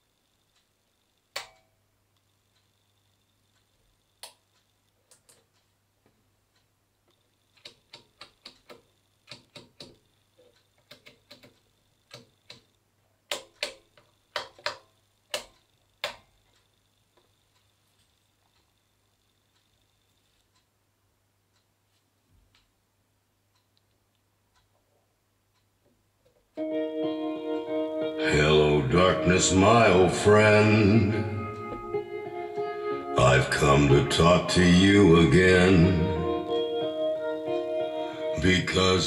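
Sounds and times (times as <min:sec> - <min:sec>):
amplifier switch clicks: 0:01.4 - 0:01.6.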